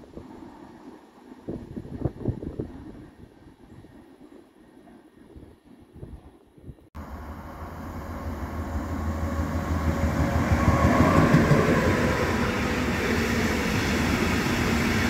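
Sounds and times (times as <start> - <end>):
train running past: 7.0 - 15.0.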